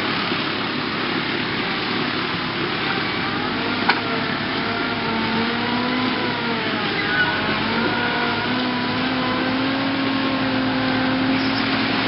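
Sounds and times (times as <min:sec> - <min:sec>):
wood chipper running: 0:00.0 - 0:12.0.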